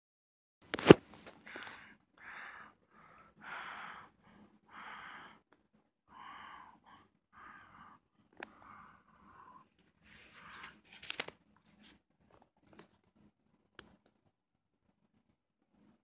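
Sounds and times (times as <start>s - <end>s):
hissy breathing: 1.4s - 5.4s.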